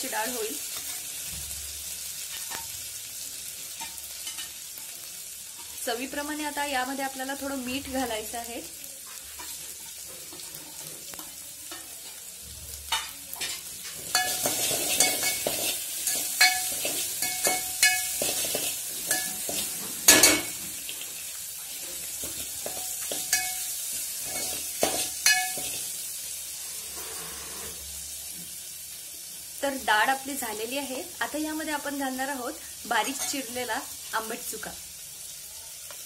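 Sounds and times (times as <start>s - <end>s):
lentils sizzling in hot oil: 0.0s - 36.0s
steel spoon scraping and clinking pot: 12.9s - 20.6s, 22.3s - 25.8s.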